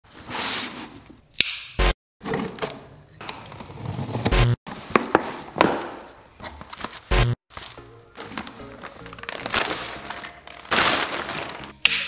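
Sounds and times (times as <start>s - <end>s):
plastic wrapping rustling: 6.5s - 11.8s.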